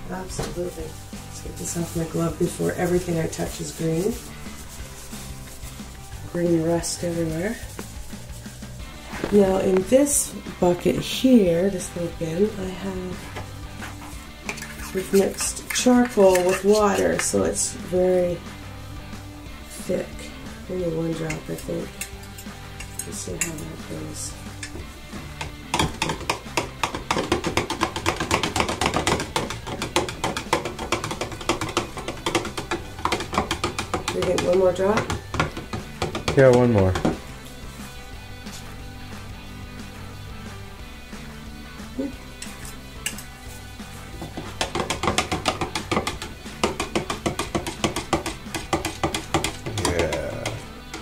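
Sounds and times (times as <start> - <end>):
background music: 0.0 - 51.0
spoon stirring in plastic pitcher: 14.4 - 17.4, 24.6 - 37.2, 42.4 - 51.0.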